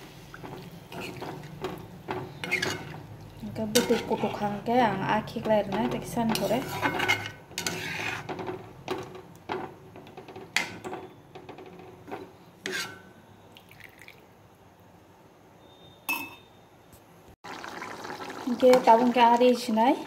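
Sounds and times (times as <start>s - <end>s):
ladle scraping and knocking pan: 0.0s - 13.2s.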